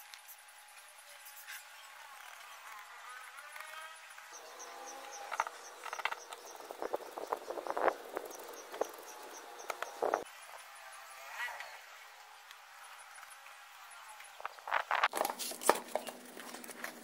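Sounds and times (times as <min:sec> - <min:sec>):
cricket chirping: 0:04.3 - 0:11.1.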